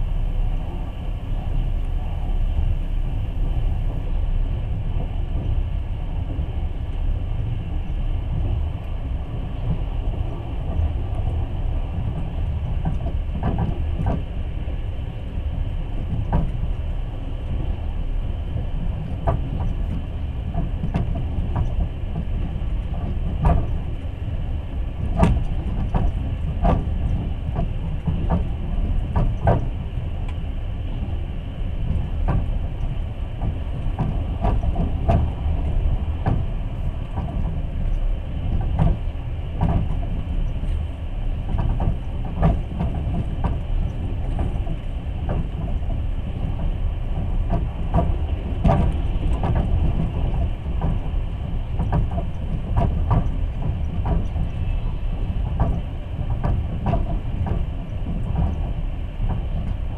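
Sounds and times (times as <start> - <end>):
train rumble inside carriage: 0.0 - 59.9
wheels clicking on track: 0.0 - 59.9.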